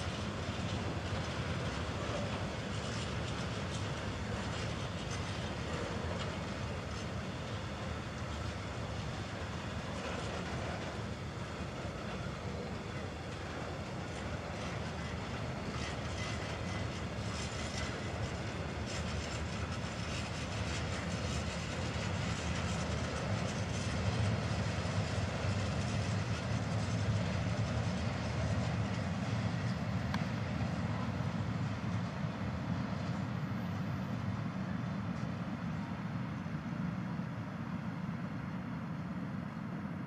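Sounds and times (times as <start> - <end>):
freight train wheels rumbling on track: 0.0 - 40.0.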